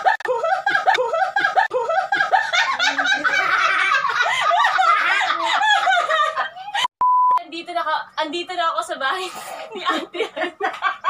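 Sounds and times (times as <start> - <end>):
woman laughing high-pitched: 0.0 - 6.9.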